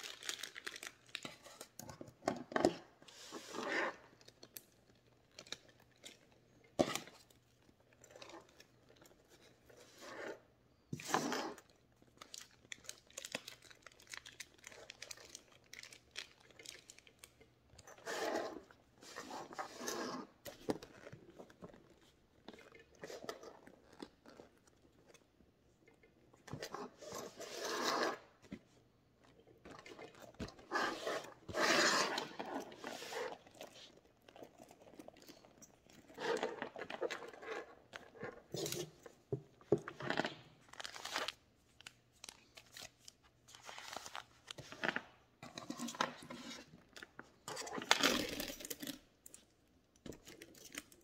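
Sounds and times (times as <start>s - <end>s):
leather rustling and creaking: 19.9s - 22.6s, 23.5s - 25.2s.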